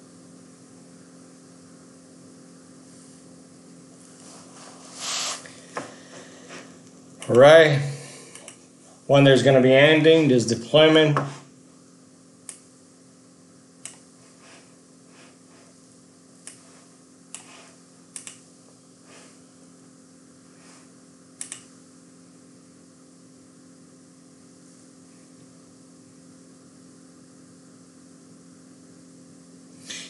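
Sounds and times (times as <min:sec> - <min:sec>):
steady low hum: 0:00.0 - 0:30.0
computer mouse clicks: 0:08.3 - 0:08.6, 0:13.8 - 0:14.0, 0:16.4 - 0:16.6, 0:17.3 - 0:18.4, 0:21.4 - 0:21.7.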